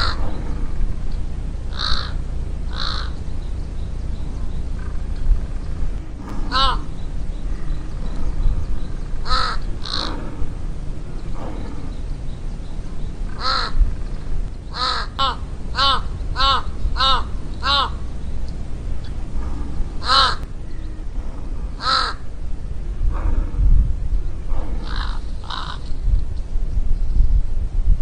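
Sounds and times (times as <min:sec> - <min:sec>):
crow cawing: 0:00.0 - 0:01.0, 0:01.7 - 0:03.3, 0:06.2 - 0:12.4, 0:13.0 - 0:18.4, 0:19.0 - 0:20.8, 0:21.7 - 0:22.3, 0:24.8 - 0:26.0.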